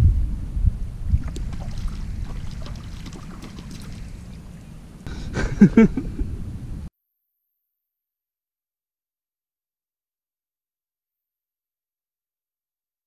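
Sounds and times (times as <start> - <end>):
wind buffeting microphone: 0.0 - 6.9.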